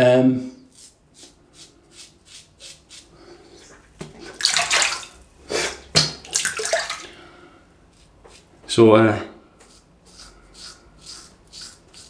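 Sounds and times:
razor scraping stubble: 0.7 - 3.1, 7.9 - 8.6, 9.6 - 12.0
water splashing: 4.1 - 7.2.

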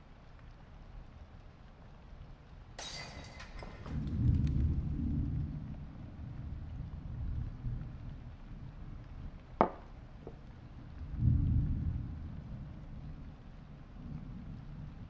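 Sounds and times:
low thunder-like rumble: 3.8 - 9.4, 10.8 - 15.0.

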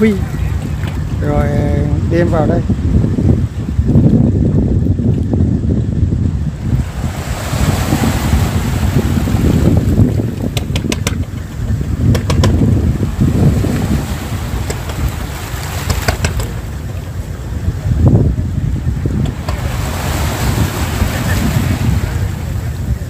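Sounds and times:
wind buffeting the microphone: 0.0 - 23.0
small waves lapping on stones: 13.7 - 16.6.

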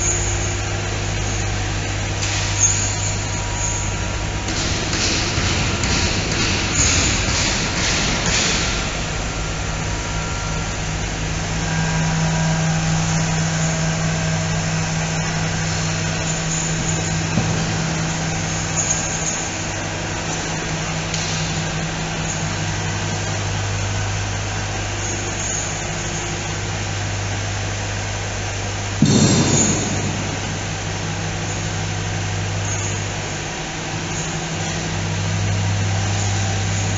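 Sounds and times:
factory machinery humming: 0.0 - 36.9
steady low tones: 2.9 - 23.4, 27.8 - 34.1.

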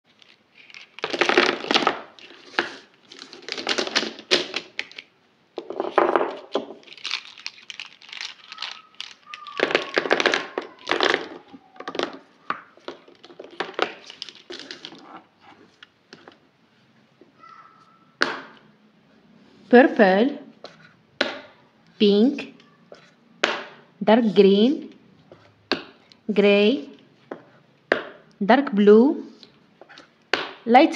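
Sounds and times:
plastic markers clattering: 0.1 - 16.4.

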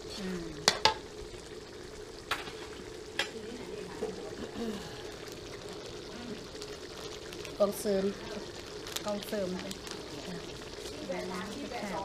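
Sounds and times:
sauce sizzling in a wok: 0.0 - 12.0
metal ladle clanking on pan: 0.6 - 1.0.

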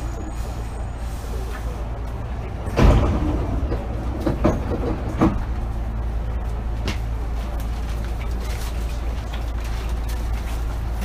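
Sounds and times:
train car humming: 0.0 - 11.0
sliding doors thumping open: 2.5 - 6.0.

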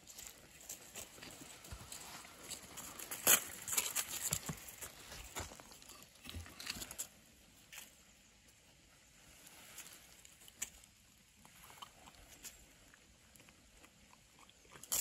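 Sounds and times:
footsteps in dry leaves: 0.0 - 7.1.

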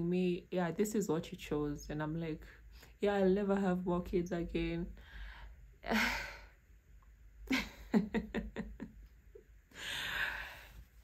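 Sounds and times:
woman breathing in: 5.0 - 5.6, 9.7 - 10.9
woman laughing: 7.5 - 9.1.

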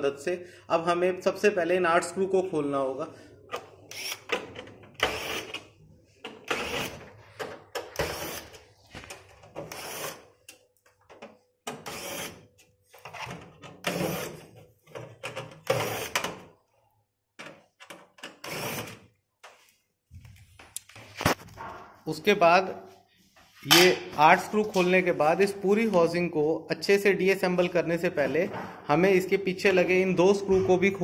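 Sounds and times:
screwdriver mechanical bursts: 3.5 - 4.4, 5.0 - 5.6, 6.4 - 7.0, 8.0 - 8.6, 9.7 - 10.2, 11.8 - 12.4, 13.8 - 14.4, 15.7 - 16.3, 18.4 - 19.0.

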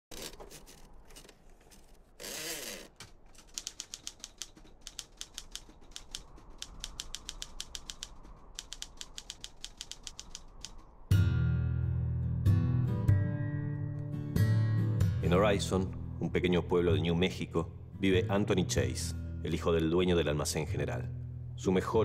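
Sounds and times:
typewriter keys clacking: 3.0 - 10.8.

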